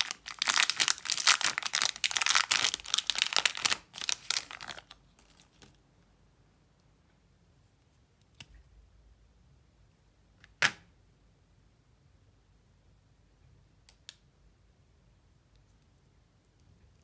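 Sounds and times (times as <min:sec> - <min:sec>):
foil wrapper crinkling and tearing: 0:00.0 - 0:05.7.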